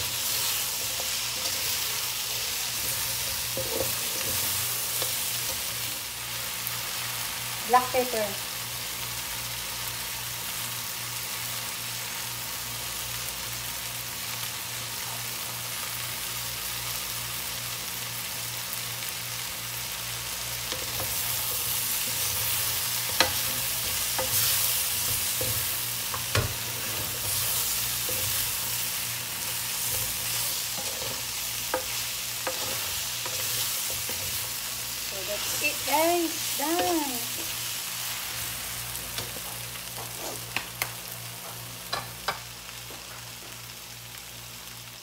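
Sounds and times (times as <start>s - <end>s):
food sizzling in a wok: 0.0s - 45.0s.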